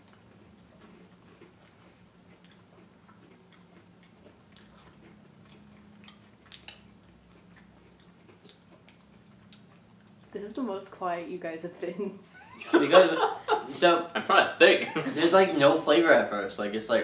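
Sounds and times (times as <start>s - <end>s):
chewing and crunching wafer: 0.0s - 10.6s
low room hum: 0.0s - 17.0s.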